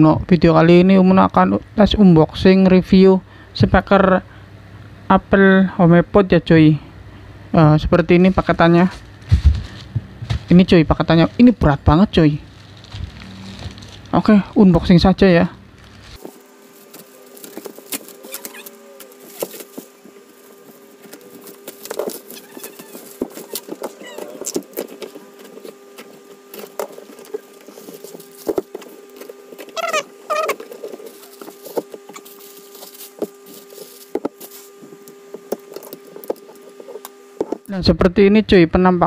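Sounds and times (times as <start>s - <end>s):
faint steady hum: 0.0s - 39.0s
plastic and bubble wrap crinkling: 9.0s - 14.4s, 15.7s - 37.1s
short squeals: 17.2s - 19.7s, 22.2s - 24.6s, 29.7s - 31.4s.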